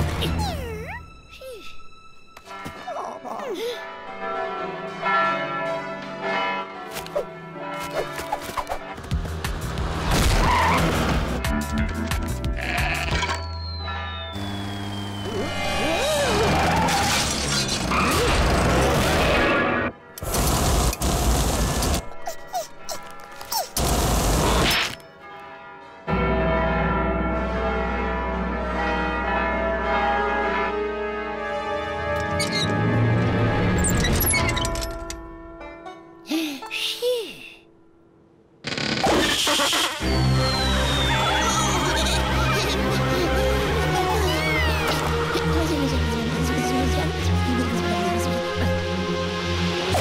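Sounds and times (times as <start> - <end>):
music: 0.0 - 38.2, 39.7 - 50.0
church bells ringing: 2.4 - 7.9, 13.4 - 16.1, 25.0 - 32.2, 40.2 - 48.8
church clock bell tolling: 3.9 - 7.8, 25.1 - 31.5
squeaky chirps: 39.0 - 43.1.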